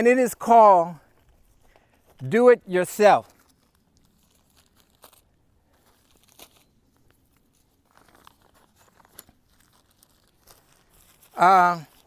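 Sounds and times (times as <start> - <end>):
faint crinkles and clicks: 3.2 - 12.0.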